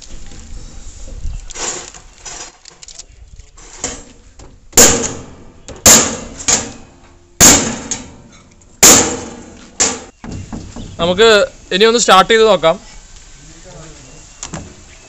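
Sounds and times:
hammering on metal: 4.8 - 6.8, 8.8 - 10.1.

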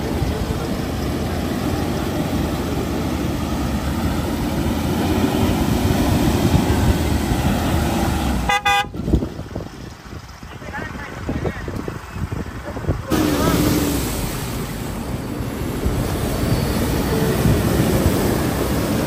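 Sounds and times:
vehicle engine rumbling: 0.0 - 19.0
car horn toot: 8.4 - 9.0.

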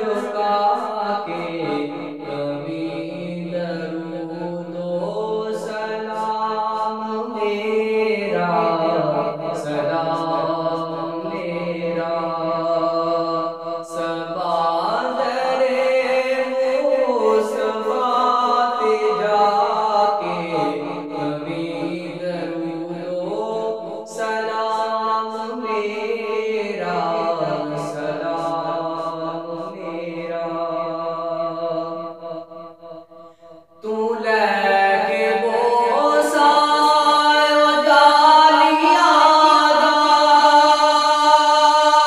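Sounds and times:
voices humming a cappella chant: 0.0 - 32.2, 33.8 - 42.0.

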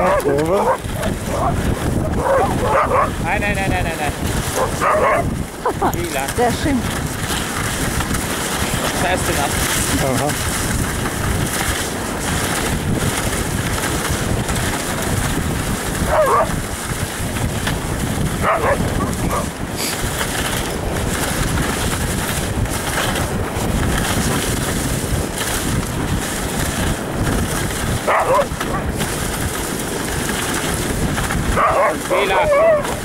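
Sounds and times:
dog yelping: 0.0 - 3.2, 4.6 - 5.3, 16.0 - 16.5, 18.4 - 19.5, 28.1 - 28.9, 31.6 - 33.0
sled runners rushing over snow: 0.0 - 33.0
wind on microphone: 0.0 - 33.0.

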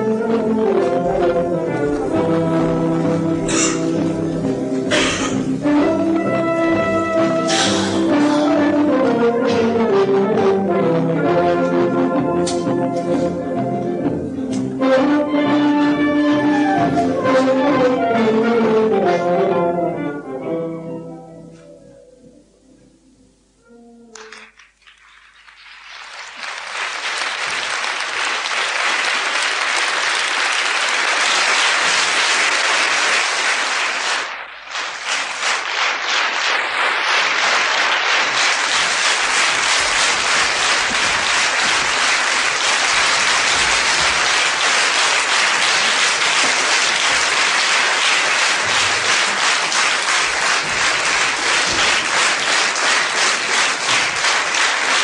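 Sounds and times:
rhythmic clapping in unison: 24.1 - 55.0
audience applauding: 24.2 - 55.0.

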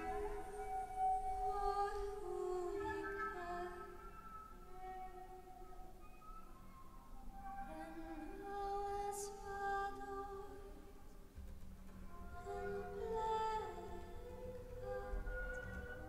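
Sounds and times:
woman singing long held notes: 0.0 - 5.3, 7.5 - 11.0, 12.2 - 16.0.

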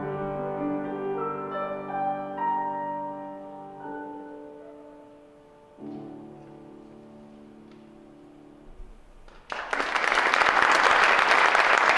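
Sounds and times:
grand piano chords: 0.0 - 9.6
audience applause: 9.3 - 11.9.

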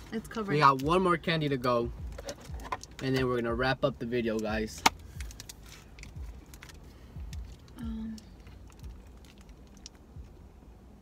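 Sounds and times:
candy wrapper crinkling: 5.0 - 10.4.

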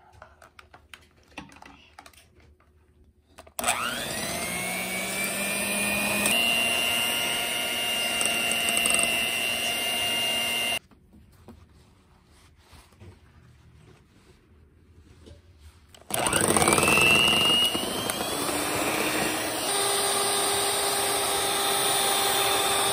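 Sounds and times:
electric hand mixer whisking: 3.6 - 10.8, 16.0 - 22.9.

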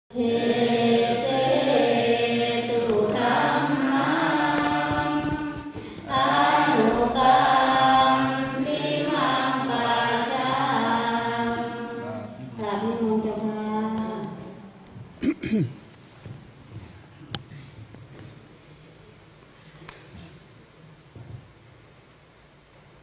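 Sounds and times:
voices chanting long tones: 0.1 - 14.9.

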